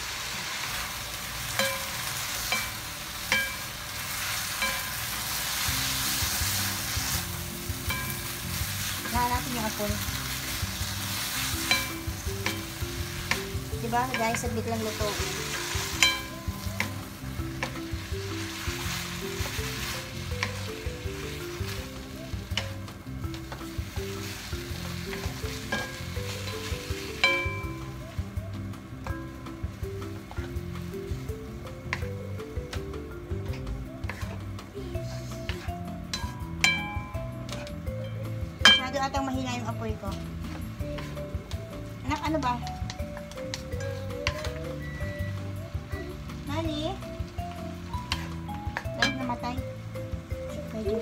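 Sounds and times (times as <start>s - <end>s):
slow background music: 0.0s - 51.0s
stir-fry sizzling: 0.0s - 51.0s
spatula clinking on pan: 1.6s - 3.7s, 4.6s - 5.1s, 7.8s - 8.4s, 11.6s - 14.7s, 16.0s - 17.0s, 25.1s - 26.6s, 27.2s - 27.8s, 38.6s - 39.0s.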